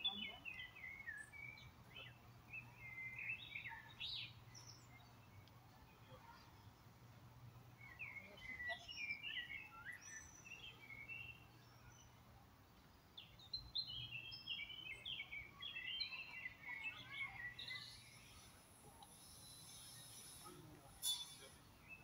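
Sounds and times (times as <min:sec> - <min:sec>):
songbird chirping: 0:00.0 - 0:22.0.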